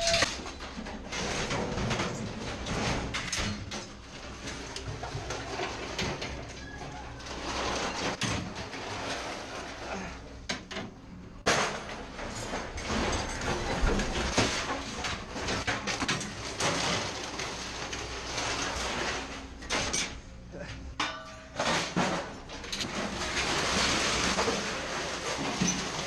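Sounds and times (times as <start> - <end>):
scrap metal clanking: 0.0 - 10.7, 11.4 - 20.3, 20.9 - 26.0
metal crash: 11.4 - 20.3.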